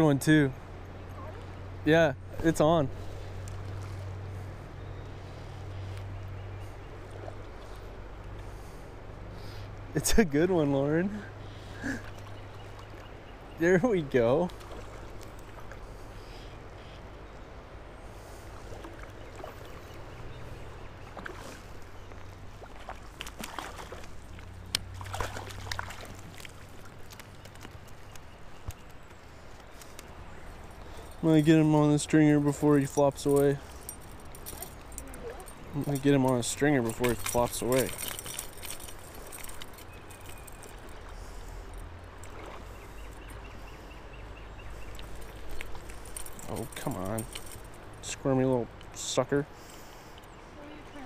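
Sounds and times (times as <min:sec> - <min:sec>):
stream water running: 0:00.0 - 0:51.0
short splashes and knocks: 0:14.3 - 0:15.8, 0:18.6 - 0:28.9, 0:33.6 - 0:40.9, 0:42.2 - 0:42.8
faint handling noises: 0:32.3 - 0:41.0.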